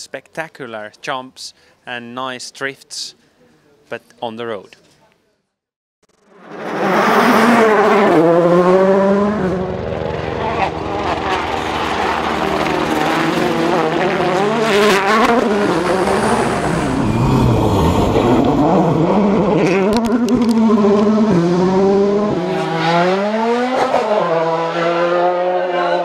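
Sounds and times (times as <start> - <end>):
rally car engines at full throttle: 6.1 - 26.0.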